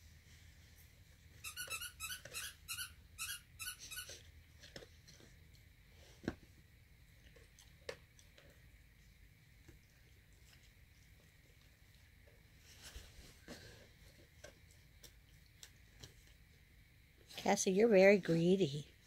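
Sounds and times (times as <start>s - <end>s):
toy squeaking: 1.4s - 4.1s.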